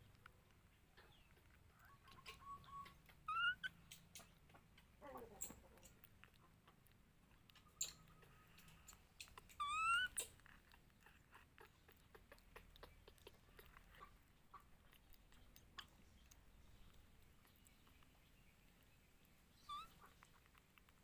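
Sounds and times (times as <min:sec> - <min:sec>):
wet chewing and lapping: 0:00.0 - 0:21.0
monkey high squeaky calls: 0:02.2 - 0:03.8, 0:09.5 - 0:10.4, 0:19.6 - 0:20.1.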